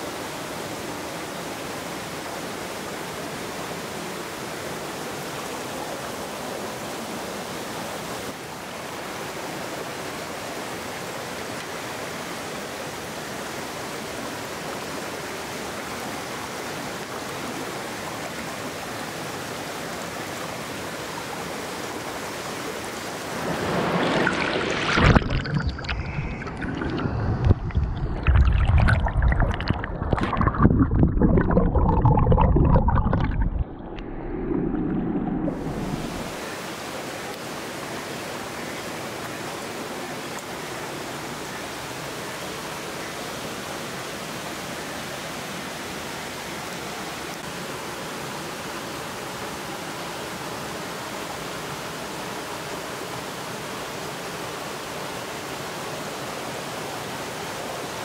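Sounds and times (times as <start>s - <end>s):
stream flowing: 0.0s - 58.0s
underwater sloshing and bubbling: 23.2s - 36.4s.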